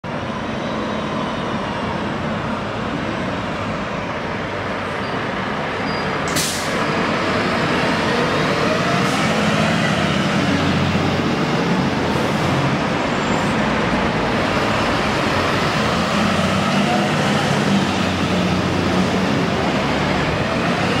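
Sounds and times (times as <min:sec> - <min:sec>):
diesel engines: 0:00.0 - 0:21.0
sirens wailing: 0:07.0 - 0:21.0.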